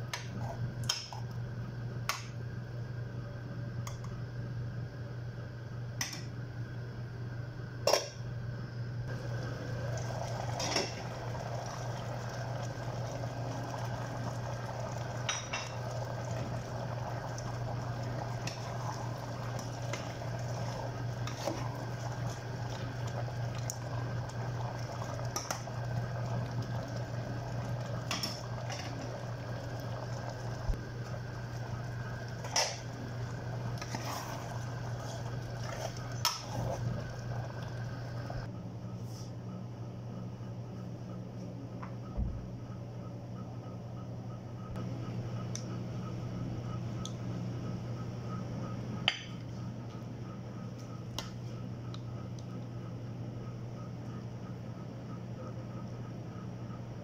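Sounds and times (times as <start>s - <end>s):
low hum: 0.0s - 57.0s.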